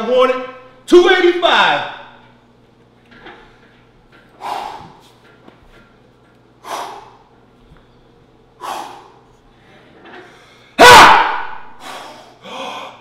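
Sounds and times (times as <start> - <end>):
man breathing sharply: 4.4 - 5.2, 6.6 - 10.8, 11.7 - 13.0.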